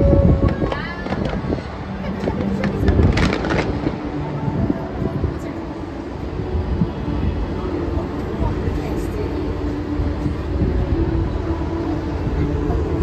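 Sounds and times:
low rumble: 0.0 - 13.0
distant pyrotechnic crackle: 0.4 - 4.6.

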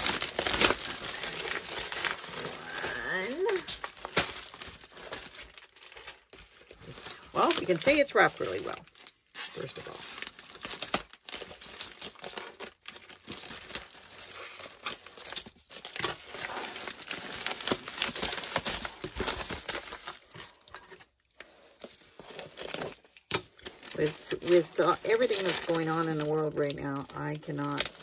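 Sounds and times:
paper tearing: 0.0 - 6.2
paper crinkling and rustling: 0.0 - 28.0.

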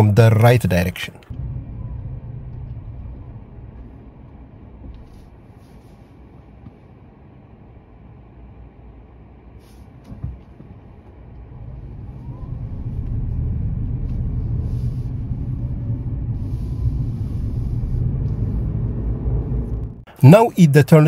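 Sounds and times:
car road and engine rumble: 0.0 - 21.0.

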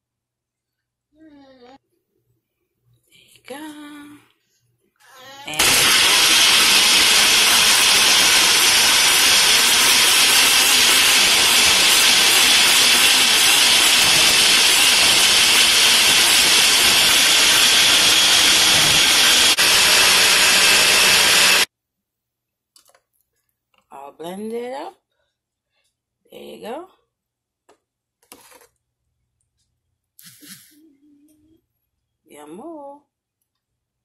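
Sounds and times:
blender motor whirring: 5.5 - 21.7.

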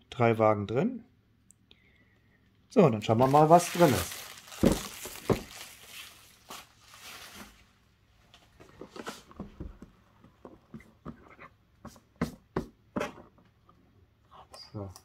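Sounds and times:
taps and knocks on cardboard box: 11.8 - 13.3.

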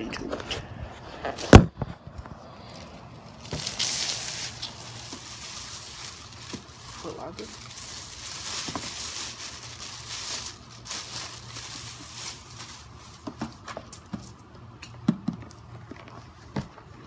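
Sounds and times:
plastic bag rustling: 2.6 - 13.9.

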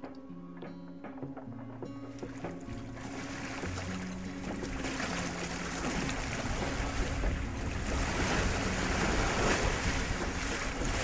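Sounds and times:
ocean waves rushing past boat: 2.2 - 11.0
wind buffeting microphone: 3.5 - 11.0.

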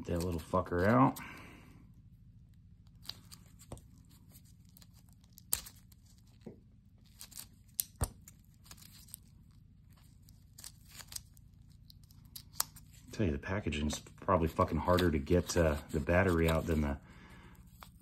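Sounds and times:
plastic packaging crackling and tearing: 2.9 - 13.1, 14.3 - 17.0.

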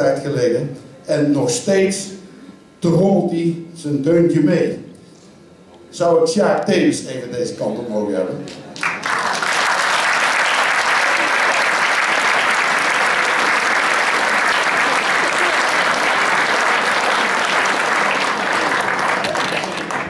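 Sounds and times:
audience applauding: 8.8 - 20.0.

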